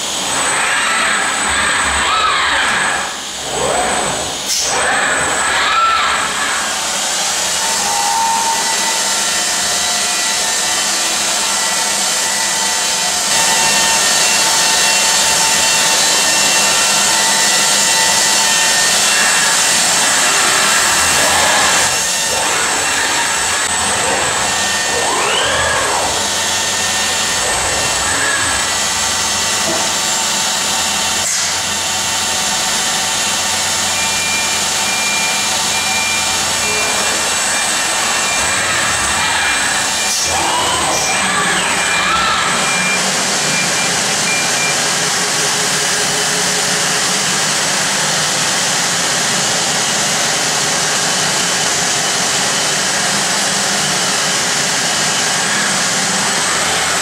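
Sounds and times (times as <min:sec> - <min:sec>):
belt grinder grinding metal: 0:09.4 - 0:34.1, 0:35.5 - 0:43.6.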